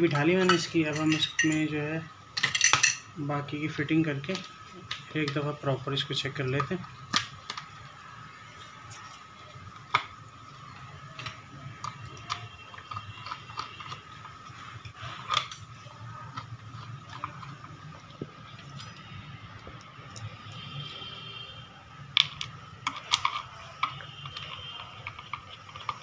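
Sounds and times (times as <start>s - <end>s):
faint background hum: 0.0s - 26.0s
metal parts clicking and knocking: 0.1s - 1.7s, 2.4s - 3.0s, 22.1s - 26.0s.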